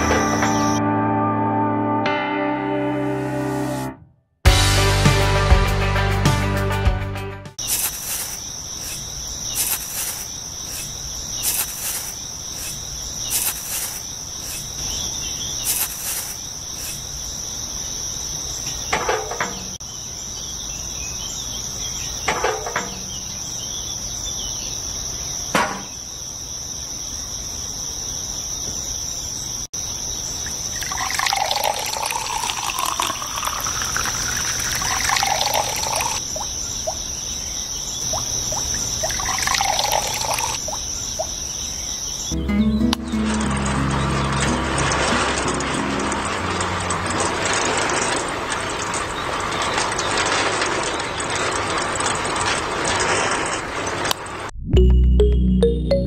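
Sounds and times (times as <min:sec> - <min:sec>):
crickets chirring: 0:00.0 - 0:00.8, 0:07.6 - 0:54.4.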